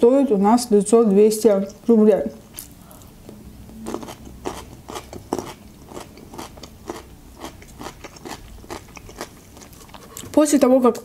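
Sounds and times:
crunchy pickle chewing: 3.7 - 10.4.

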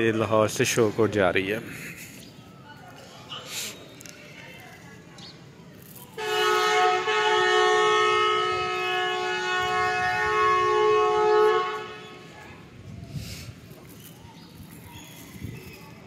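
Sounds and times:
train horn long blast: 6.2 - 12.4.

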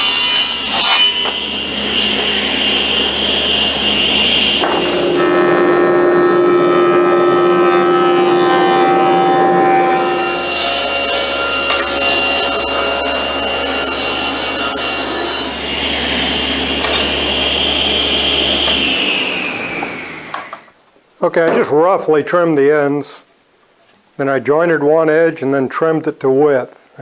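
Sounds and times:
table saw ripping board: 0.0 - 2.4, 4.4 - 5.6, 6.8 - 20.7
jointer planing wood: 0.0 - 20.7
saw motor hum: 0.4 - 20.7.

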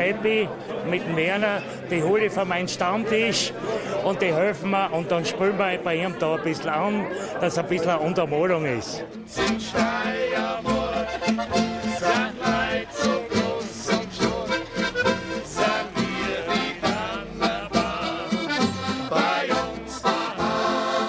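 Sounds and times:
strummed acoustic guitar: 9.1 - 21.0
double bass: 9.2 - 21.0
button accordion: 9.3 - 21.0
men singing: 9.3 - 21.0.

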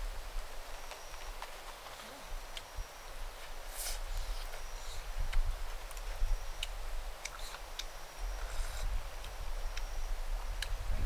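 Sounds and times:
wind rumble on microphone: 2.3 - 11.0.

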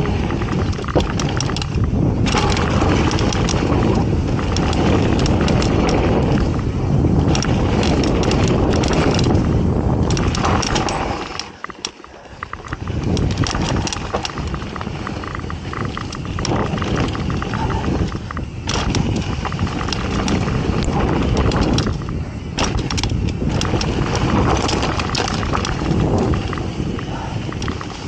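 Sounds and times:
bike rattles and clicks: 0.0 - 28.0
tyres on dirt: 0.0 - 28.0
wind rushing over microphone: 0.0 - 28.0.

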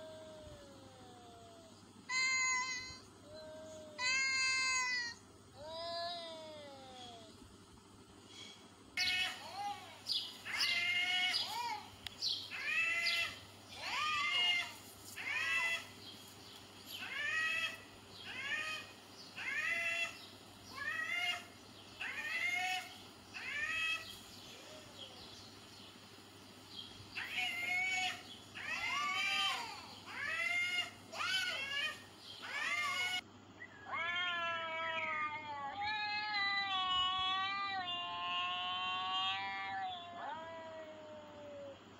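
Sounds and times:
cat yowling: 10.4 - 11.8, 12.5 - 15.9, 17.0 - 24.0, 27.2 - 33.2, 33.8 - 41.8
cat meowing: 33.9 - 41.8.

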